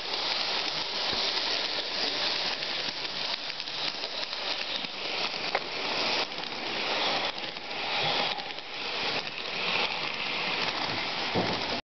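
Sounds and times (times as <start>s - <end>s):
model train wheels rattling on track: 0.0s - 11.8s.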